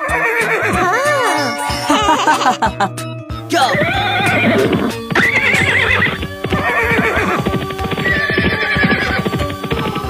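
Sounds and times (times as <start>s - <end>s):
cartoon horse whinnying: 0.0s - 1.6s, 3.5s - 9.5s
background music: 0.0s - 10.0s
hooves clip-clopping: 3.7s - 10.0s.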